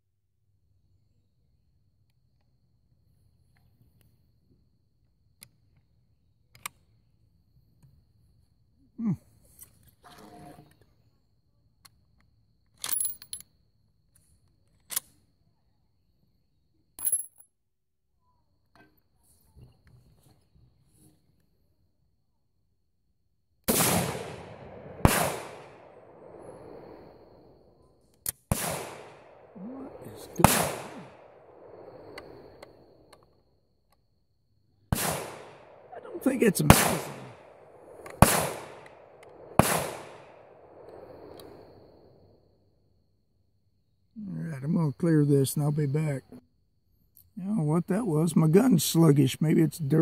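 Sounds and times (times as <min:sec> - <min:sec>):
gunshots echoing: 0:23.7 - 0:27.2, 0:28.5 - 0:32.6, 0:34.9 - 0:41.6.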